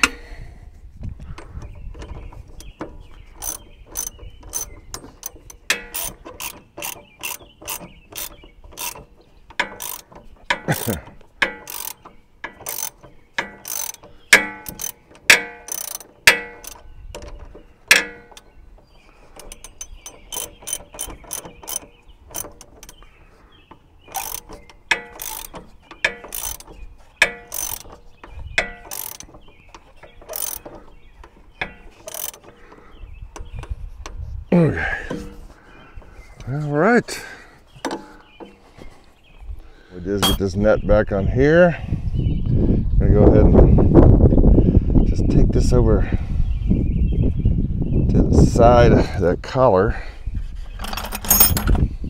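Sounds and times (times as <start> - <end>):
ratchet wrench clicking: 3.4 - 16.8, 19.4 - 23.0, 24.1 - 28.0, 28.6 - 29.3, 30.3 - 30.7, 31.6 - 32.5.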